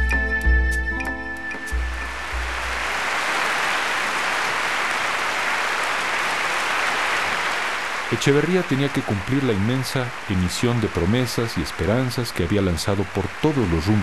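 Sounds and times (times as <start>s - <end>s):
music with deep beats: 0.0s - 2.6s
crowd applauding: 2.0s - 14.0s.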